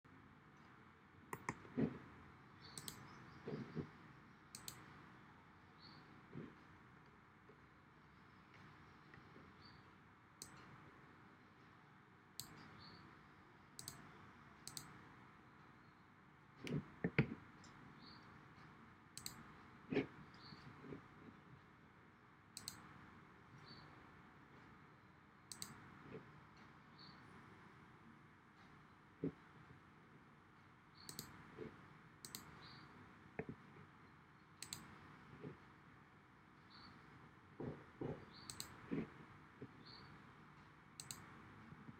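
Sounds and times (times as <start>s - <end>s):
computer mouse clicks: 1.3s - 2.0s, 2.6s - 5.0s, 10.4s - 10.8s, 12.4s - 12.8s, 13.8s - 15.0s, 19.2s - 21.0s, 22.6s - 22.9s, 25.5s - 26.2s, 31.0s - 32.8s, 34.6s - 35.6s, 37.6s - 40.0s, 41.0s - 41.9s.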